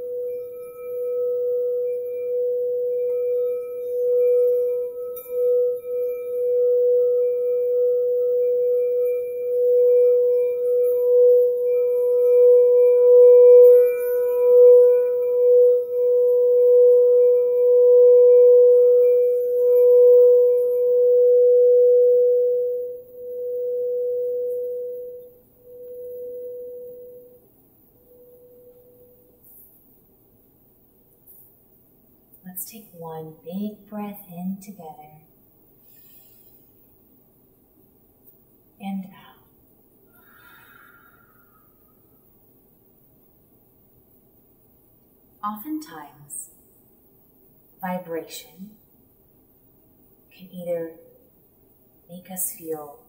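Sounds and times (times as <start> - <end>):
singing bowl ringing: 0.0 - 29.6.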